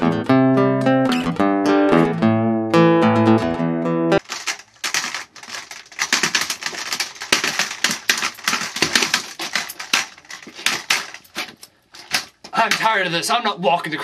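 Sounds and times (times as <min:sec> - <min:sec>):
walking frame clattering on floor: 0:04.3 - 0:13.1.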